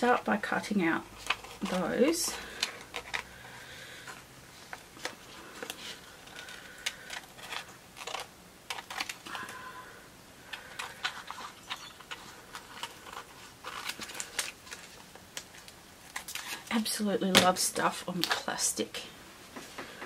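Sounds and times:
plastic sheet rustling: 10.4s - 17.0s.

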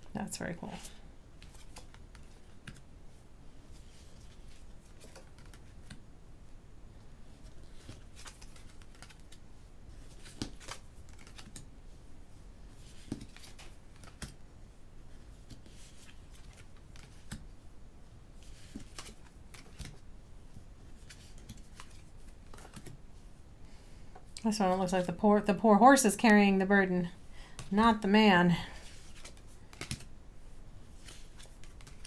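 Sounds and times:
cards sliding scrapes: 30.9s - 32.0s.

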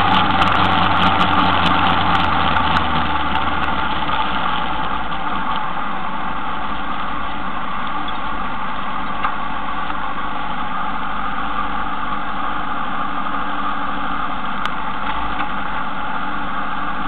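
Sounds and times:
motorcycle engine: 0.0s - 11.8s.

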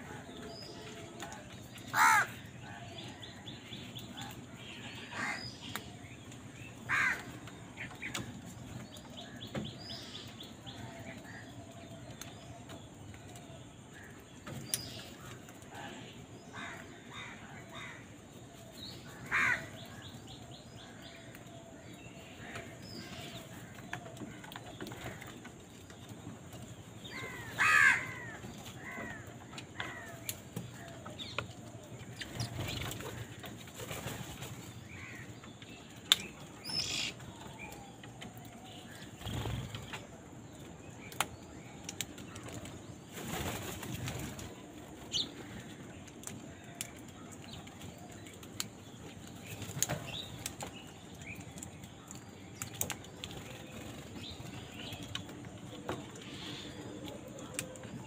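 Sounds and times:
crow caws: 1.9s - 2.4s, 5.1s - 5.4s, 6.9s - 7.2s, 19.3s - 19.7s, 27.1s - 29.2s.

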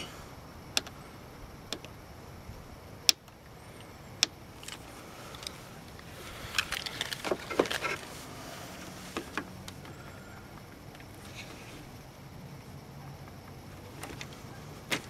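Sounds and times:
clicks of handling wires: 4.2s - 8.1s.

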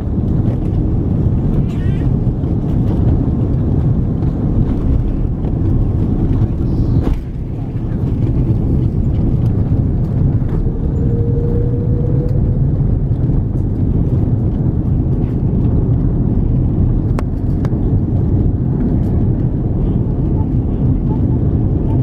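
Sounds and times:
airplane engines and wheels rumbling: 0.0s - 22.0s
faint rising whine: 6.7s - 13.4s.

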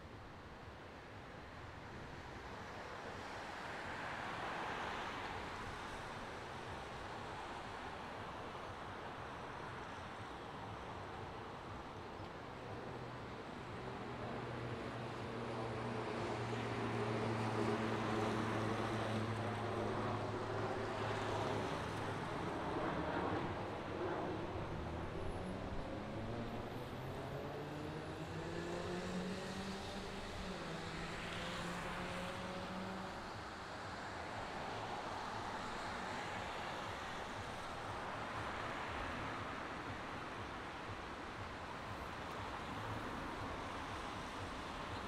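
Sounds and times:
tyres hissing on wet road: 30.2s - 40.3s.

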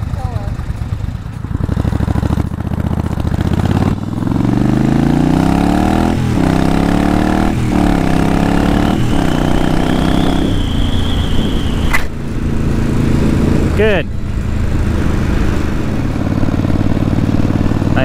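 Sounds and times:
motorcycle engine accelerating: 0.0s - 18.0s
thin high whistle: 8.7s - 12.1s.

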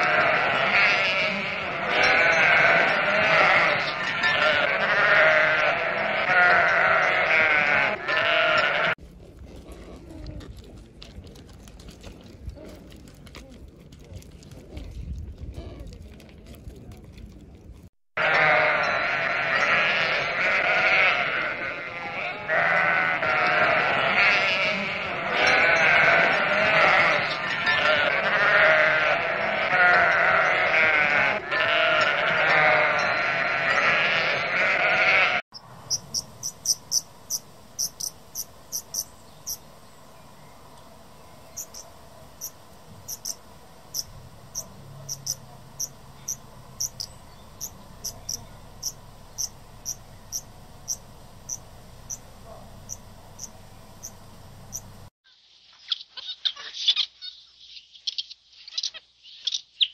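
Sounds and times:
sheep bleating: 0.0s - 9.0s, 18.2s - 35.4s.

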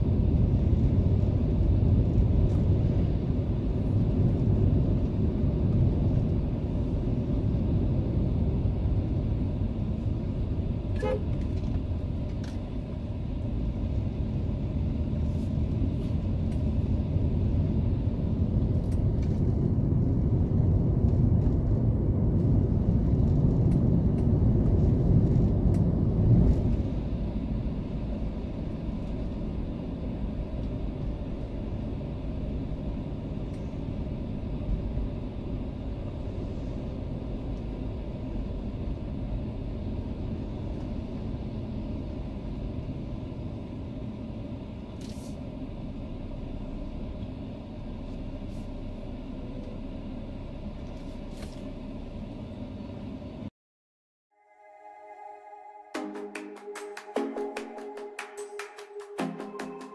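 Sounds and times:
car engine and tyre rumble: 0.0s - 53.5s.

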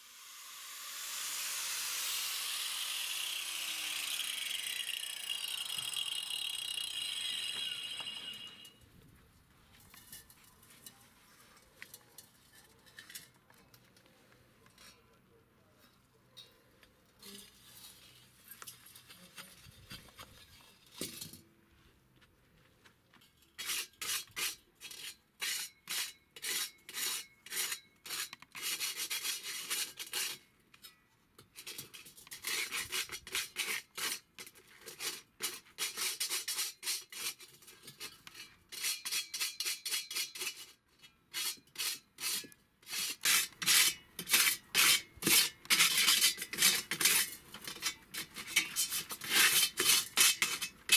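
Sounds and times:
sandpaper scrubbing on steel: 23.6s - 30.4s, 31.6s - 50.9s.

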